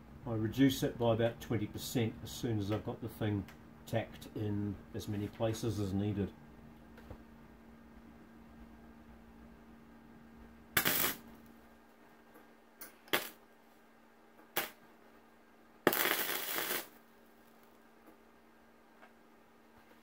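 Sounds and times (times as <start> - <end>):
steady low hum: 0.0 - 20.0
welding arc crackling: 10.8 - 11.3, 13.1 - 13.4, 14.6 - 14.8, 15.9 - 17.0.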